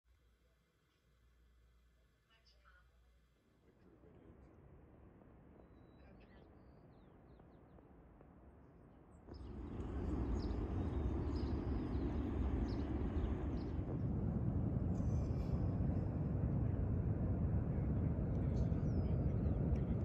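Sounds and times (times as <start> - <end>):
seaside wind: 8.7 - 20.0.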